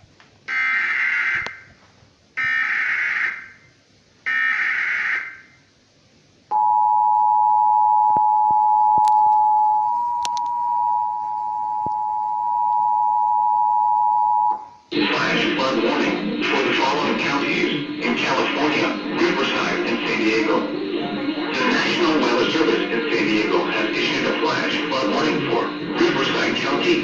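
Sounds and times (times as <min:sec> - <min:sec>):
two-tone attention signal: 0:06.5 - 0:23.8
data burst tones: 0:06.6 - 0:27.0.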